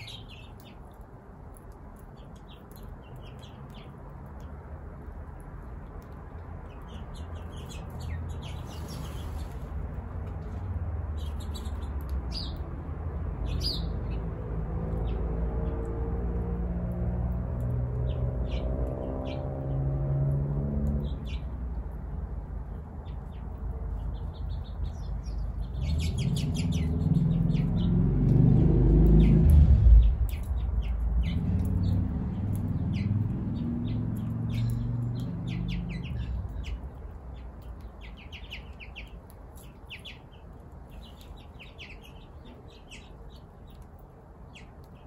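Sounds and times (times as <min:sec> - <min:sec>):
small birds chirping: 0:00.0 - 0:15.9, 0:17.6 - 0:45.0
low engine hum: 0:07.2 - 0:37.8.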